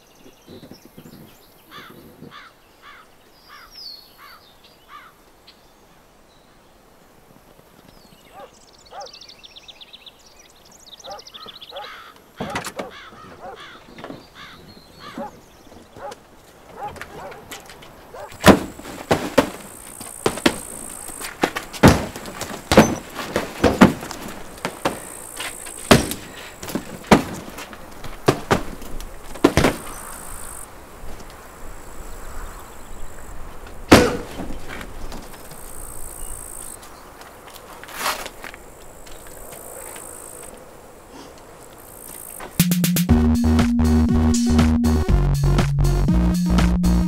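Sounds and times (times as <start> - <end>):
sharp knocks and thuds: 12.4 - 30.2, 33.9 - 35.5.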